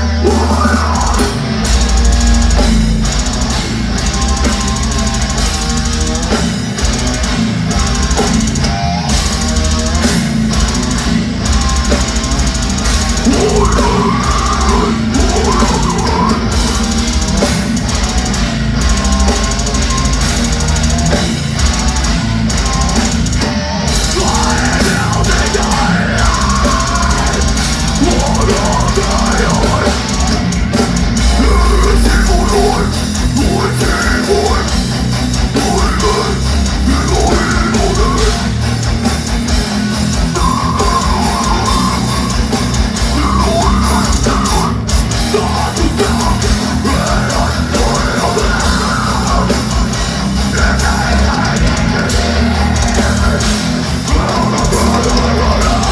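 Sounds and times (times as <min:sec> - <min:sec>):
harsh shouted vocals: 0:00.0 - 0:01.5, 0:13.1 - 0:16.8, 0:24.0 - 0:30.5, 0:31.2 - 0:38.6, 0:40.2 - 0:55.9
distorted guitars: 0:00.0 - 0:55.9
pounding drums: 0:00.0 - 0:55.9.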